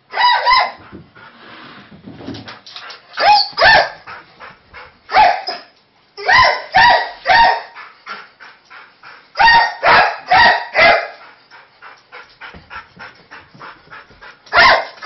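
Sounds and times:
dog barking: 0.1s - 0.8s, 3.2s - 4.0s, 5.1s - 7.8s, 9.4s - 11.2s, 14.5s - 15.0s.

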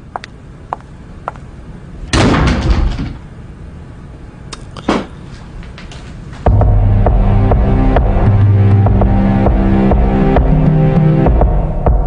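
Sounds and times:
door shutting hard: 2.1s - 3.3s.

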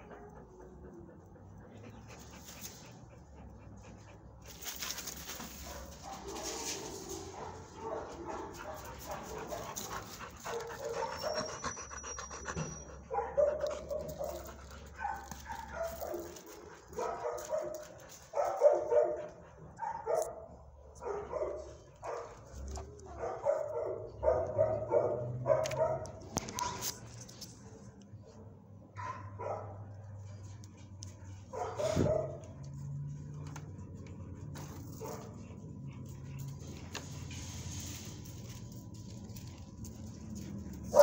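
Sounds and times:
dogs panting: 0.0s - 20.1s, 30.1s - 41.0s
dogs barking: 5.5s - 11.8s, 12.6s - 26.9s, 28.3s - 30.2s, 31.1s - 33.6s, 34.3s - 37.0s, 38.4s - 41.0s.

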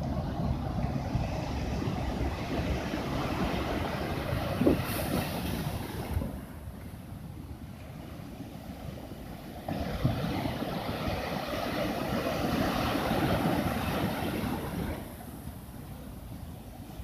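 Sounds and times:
wind rumble on microphone: 0.0s - 17.0s
sea wave breaking: 0.4s - 6.7s, 9.6s - 15.8s.

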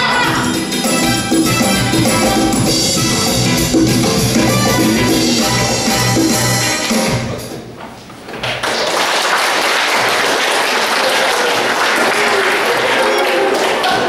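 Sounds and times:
music: 0.0s - 7.7s
audience applause: 8.4s - 14.0s.

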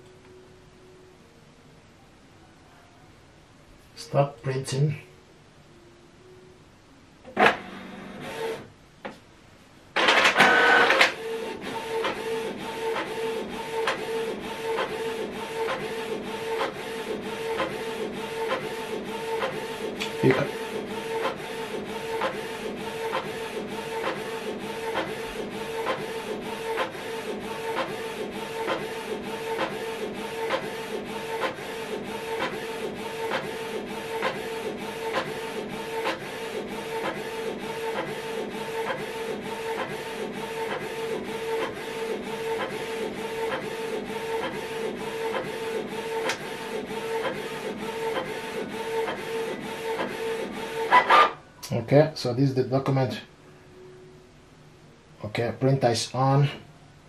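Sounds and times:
printer mechanical hum: 7.2s - 8.8s, 10.0s - 51.4s
printer ticking: 10.0s - 51.4s.

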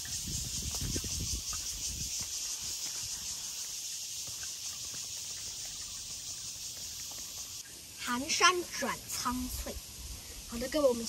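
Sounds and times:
footsteps on stone path: 0.0s - 7.7s
insects chirring: 0.0s - 11.0s.

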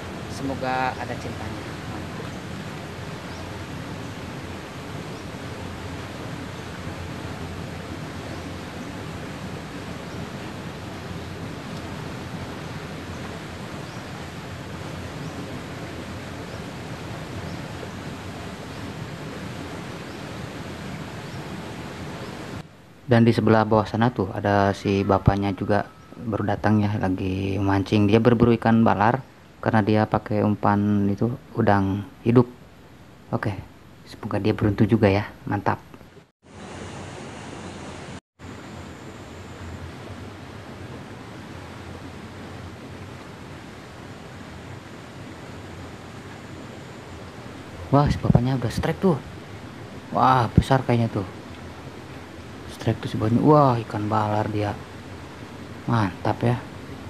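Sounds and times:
river water rushing: 0.0s - 22.8s, 36.5s - 57.0s.

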